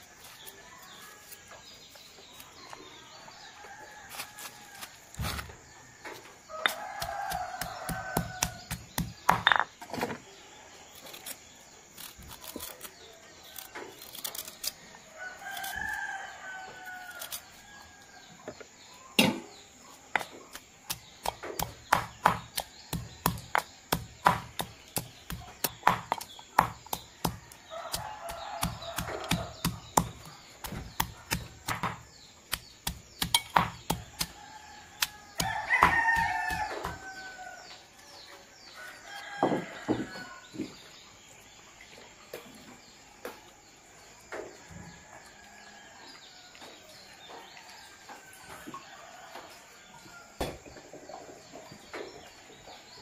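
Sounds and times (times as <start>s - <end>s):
birds chirping: 5.4s - 14.0s, 17.6s - 53.0s
rooster crowing: 6.5s - 8.7s, 27.4s - 29.8s, 34.0s - 37.6s, 38.8s - 40.4s
pestle pounding in stone mortar: 6.6s - 9.7s, 20.2s - 34.4s, 35.0s - 37.2s.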